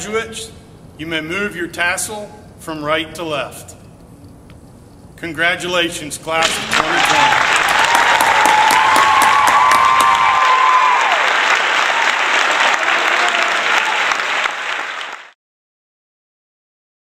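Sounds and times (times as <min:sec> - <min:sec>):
applause: 0:06.4 - 0:15.4.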